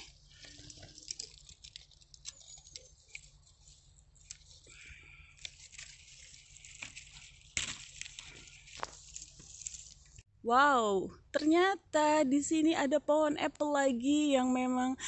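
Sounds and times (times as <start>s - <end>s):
rustling of leaves and twigs: 0.0s - 10.3s.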